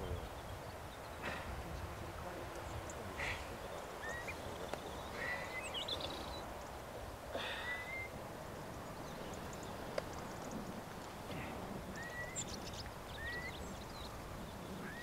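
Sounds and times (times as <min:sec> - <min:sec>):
whistled bird calls: 0:04.0 - 0:06.4, 0:07.5 - 0:08.2, 0:11.9 - 0:13.8, 0:14.8 - 0:15.0.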